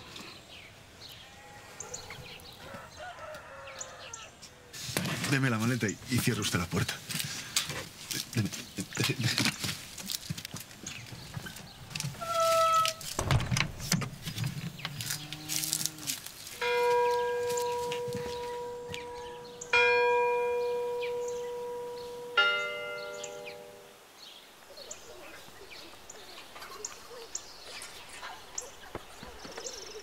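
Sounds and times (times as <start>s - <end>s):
wooden door lock clicks: 13.0s - 14.2s
church bell ringing: 16.6s - 23.9s.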